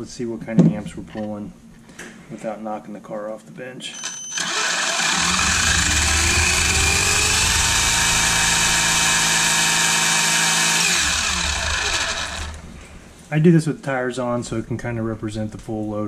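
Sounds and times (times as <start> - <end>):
electric motor whine: 4.0 - 13.0.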